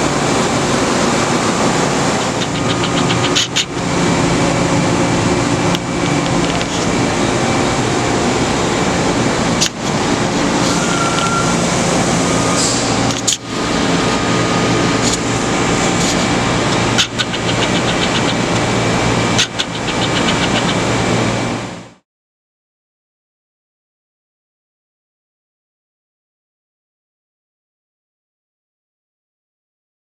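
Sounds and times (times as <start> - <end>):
machinery hum and whir: 0.0 - 22.0.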